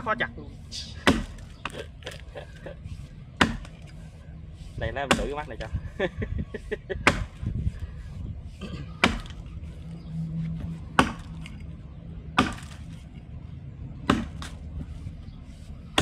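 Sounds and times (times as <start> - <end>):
axe chopping wood: 1.0 - 1.8, 3.4 - 3.9, 5.1 - 5.4, 7.0 - 7.4, 9.0 - 9.4, 10.9 - 11.5, 12.3 - 12.9, 14.0 - 14.6.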